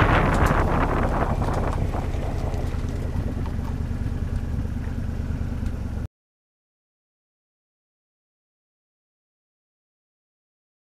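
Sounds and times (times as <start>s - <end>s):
road and wind noise: 0.0s - 6.1s
truck engine and exhaust drone: 0.0s - 6.1s.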